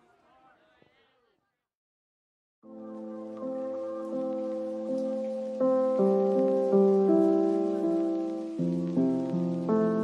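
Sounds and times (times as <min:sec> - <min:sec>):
slow keyboard background music: 0:02.7 - 0:10.0.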